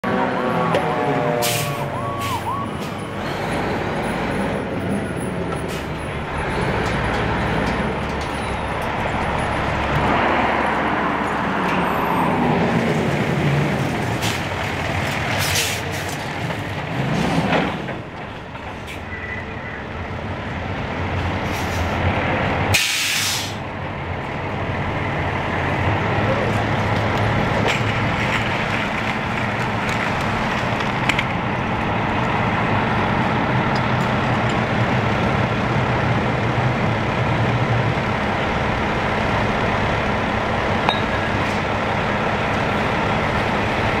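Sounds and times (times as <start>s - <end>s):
diesel engines running: 0.0s - 44.0s
siren winding down: 0.4s - 2.8s
air brake hisses: 22.7s - 23.6s.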